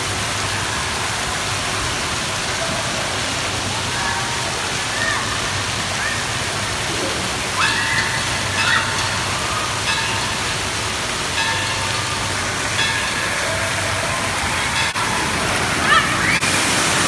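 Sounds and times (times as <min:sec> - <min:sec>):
water pouring and splashing: 0:00.0 - 0:17.0
children's voices: 0:13.6 - 0:16.4.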